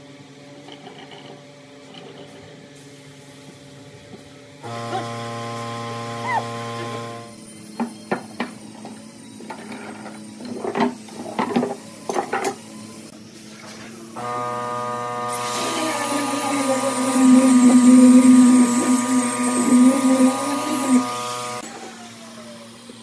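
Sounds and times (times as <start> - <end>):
angle grinder sanding: 14.2 - 21.6.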